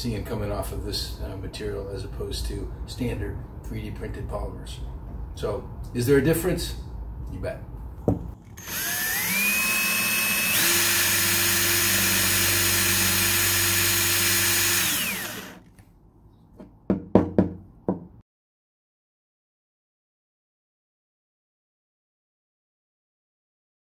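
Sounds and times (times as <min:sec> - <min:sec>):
cordless drill boring into plastic: 0:08.5 - 0:15.6.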